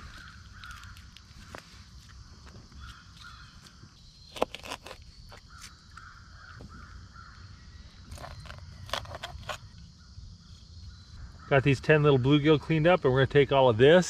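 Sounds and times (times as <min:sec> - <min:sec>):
crows cawing: 0:00.0 - 0:01.6, 0:02.8 - 0:03.7, 0:05.5 - 0:07.6.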